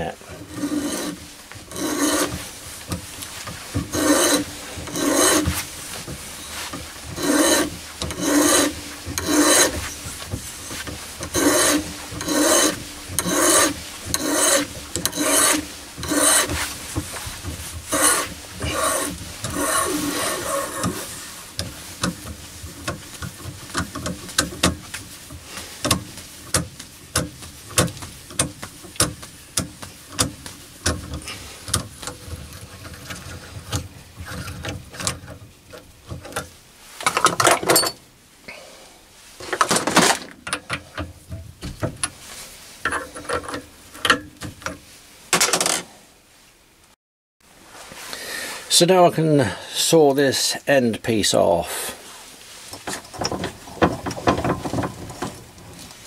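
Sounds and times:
hand tap scraping cutting strokes: 0:00.4 - 0:32.3.

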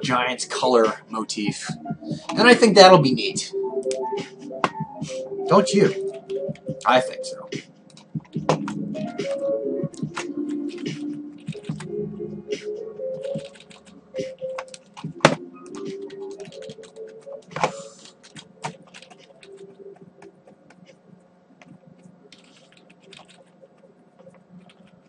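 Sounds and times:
background music: 0:00.0 - 0:21.0
computer keyboard keys clicking: 0:07.9 - 0:11.9, 0:13.2 - 0:20.6, 0:21.6 - 0:25.0.

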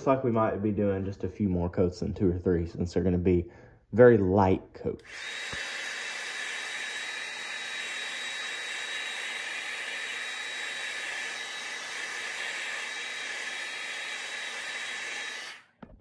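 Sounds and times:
hair dryer blowing air: 0:05.0 - 0:15.8.

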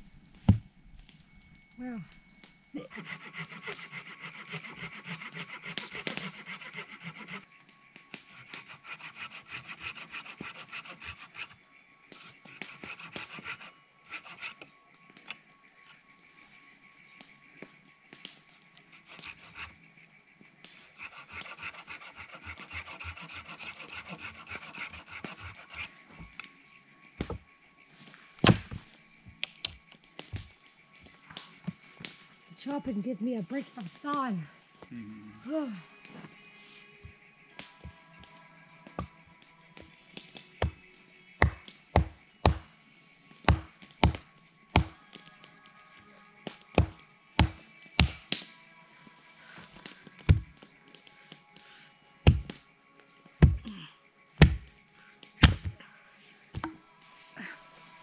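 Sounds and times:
hand saw cutting log: 0:02.8 - 0:07.4, 0:08.3 - 0:11.6, 0:12.2 - 0:14.7, 0:18.9 - 0:19.7, 0:20.9 - 0:25.9, 0:55.4 - 0:55.7.

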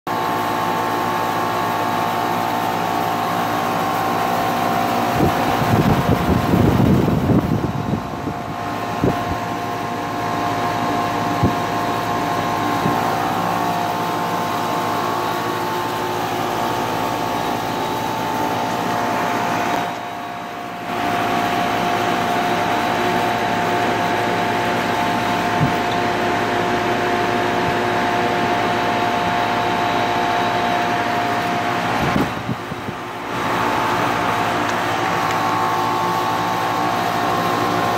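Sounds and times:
air conditioner fan hum: 0:00.1 - 0:37.9.

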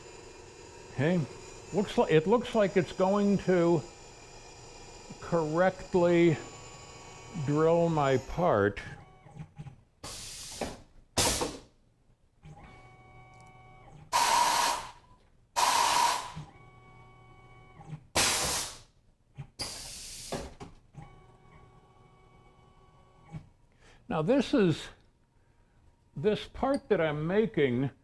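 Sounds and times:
electric motor hum: 0:00.0 - 0:09.3
sharp compressed air hisses: 0:10.0 - 0:11.6, 0:14.2 - 0:15.0, 0:15.6 - 0:16.4, 0:18.2 - 0:18.9, 0:19.6 - 0:20.5.

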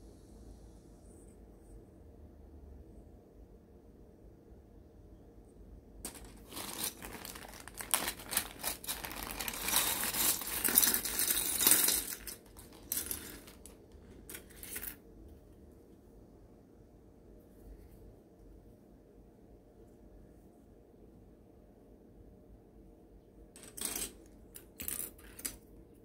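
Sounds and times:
plastic bag crinkling: 0:06.1 - 0:14.9
plastic parts clattering on mat: 0:06.1 - 0:15.0, 0:23.6 - 0:25.6.

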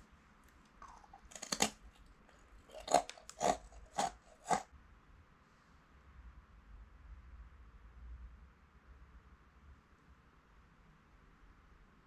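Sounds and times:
rice cracker crunching: 0:00.0 - 0:04.7.

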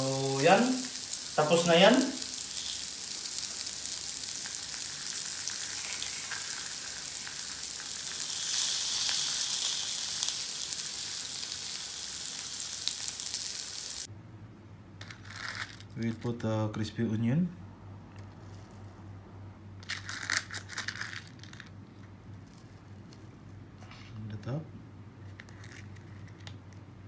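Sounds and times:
fish sizzling in a grill pan: 0:00.0 - 0:14.1.

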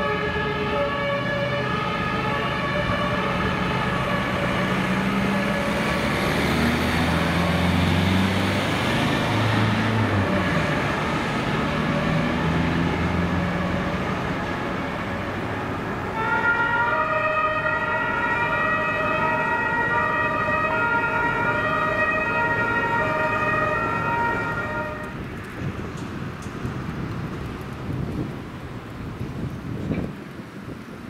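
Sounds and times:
two-tone siren: 0:00.0 - 0:07.5, 0:10.2 - 0:15.2, 0:16.1 - 0:25.2
ambulance engine: 0:00.0 - 0:27.0
traffic noise: 0:00.0 - 0:31.0.

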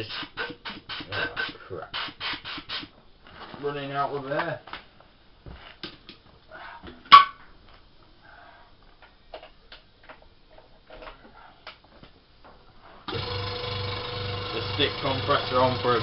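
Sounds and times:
air compressor running: 0:00.0 - 0:02.9, 0:13.1 - 0:16.0.

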